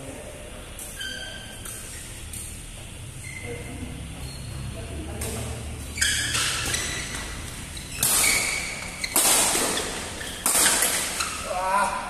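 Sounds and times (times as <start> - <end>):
rackets hitting shuttlecock: 6.1 - 11.4.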